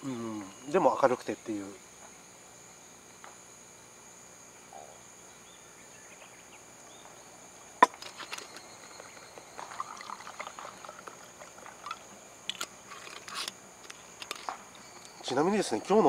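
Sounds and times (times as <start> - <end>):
insects trilling: 0.0 - 16.0
wine pouring into metal cup: 8.0 - 13.4.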